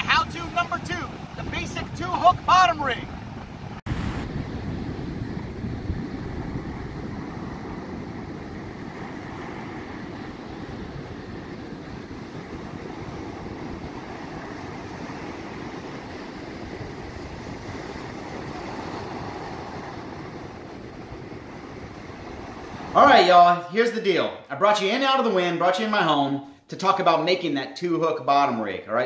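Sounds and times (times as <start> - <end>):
wind buffeting microphone: 0.0 - 23.0
ocean surf breaking: 0.0 - 24.3.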